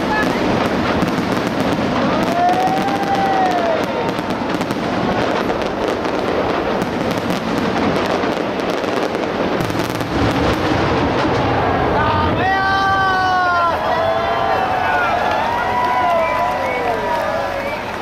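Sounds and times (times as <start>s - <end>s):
firework whistle: 0.0s - 6.2s, 15.5s - 18.0s
fireworks bangs and crackles: 0.0s - 18.0s.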